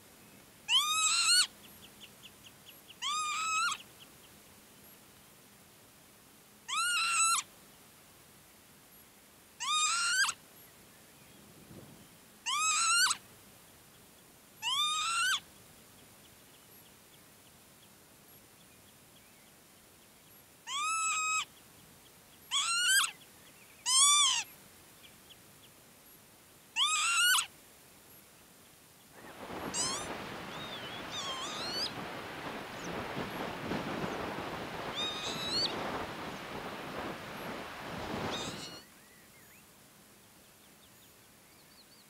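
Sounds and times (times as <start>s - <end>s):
lapwing calling: 0.7s - 1.5s, 2.9s - 3.9s, 6.7s - 7.5s, 9.6s - 10.4s, 12.4s - 13.2s, 14.6s - 15.4s, 20.6s - 21.6s, 22.5s - 23.2s, 23.8s - 24.5s, 26.8s - 27.5s, 29.2s - 38.9s.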